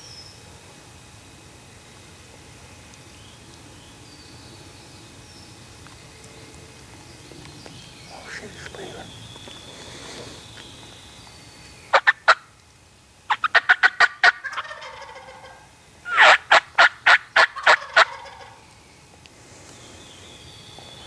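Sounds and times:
turkey calling: 8.0 - 11.2, 11.9 - 12.6, 13.3 - 18.6.

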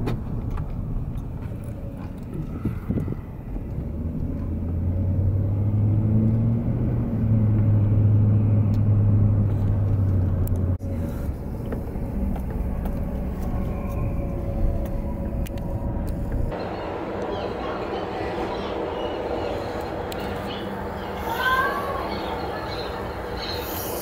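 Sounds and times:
car engine and road noise: 0.0 - 17.7.

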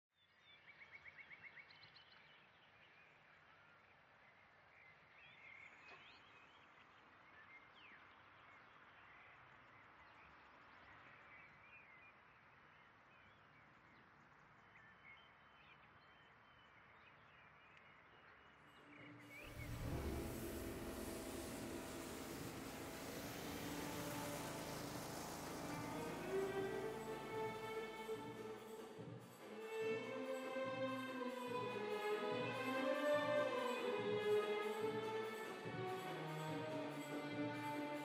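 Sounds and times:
soft steady hiss: 19.3 - 29.5.

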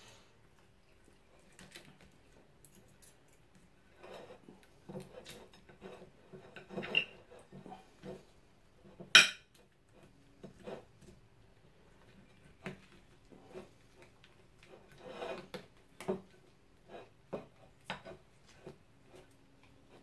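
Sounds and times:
fork scraping on ceramic plate: 3.9 - 8.2, 14.8 - 15.6.

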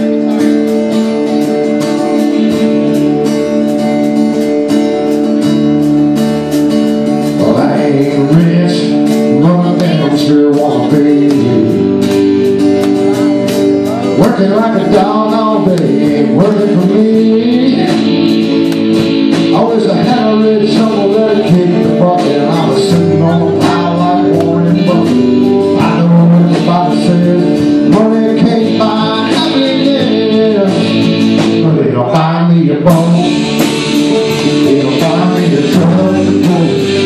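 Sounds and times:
guitars: 0.0 - 37.0
live band playing: 0.0 - 37.0
steady drumbeat: 0.0 - 37.0
lead singer singing: 7.2 - 37.0.

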